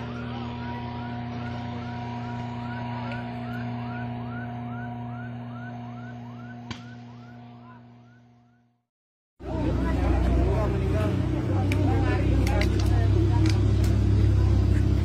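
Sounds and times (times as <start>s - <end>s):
steady hum: 0.0s - 8.2s.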